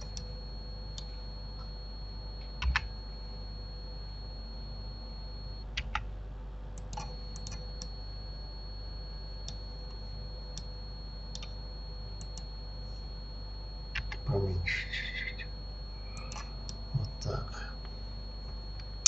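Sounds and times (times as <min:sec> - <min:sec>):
faint high-pitched whine: 0:00.0 - 0:05.9, 0:06.6 - 0:19.0
low hum: 0:00.0 - 0:19.0.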